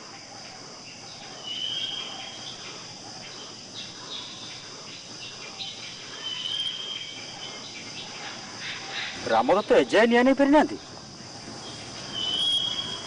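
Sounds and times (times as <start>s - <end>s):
insects droning: 0.0s - 13.0s
whistled bird calls: 1.4s - 2.6s, 6.2s - 7.5s, 11.6s - 13.0s.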